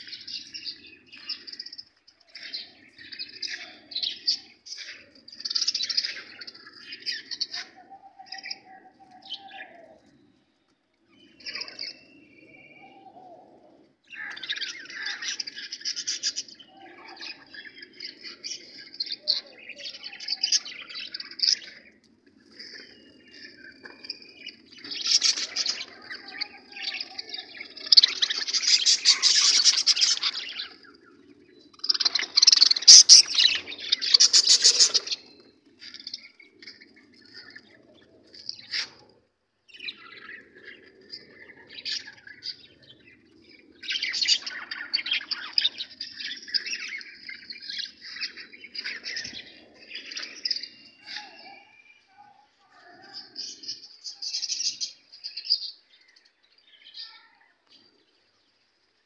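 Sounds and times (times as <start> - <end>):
budgerigars chattering and chirping: 24.8 - 30.9, 31.8 - 35.3.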